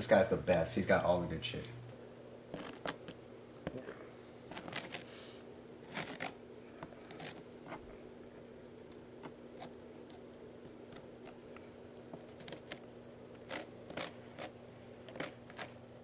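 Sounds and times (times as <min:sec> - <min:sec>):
plastic card scraping on cardboard: 0:02.5 - 0:03.2, 0:04.5 - 0:05.2, 0:05.8 - 0:07.9, 0:09.2 - 0:10.2, 0:12.2 - 0:12.8, 0:13.4 - 0:15.8.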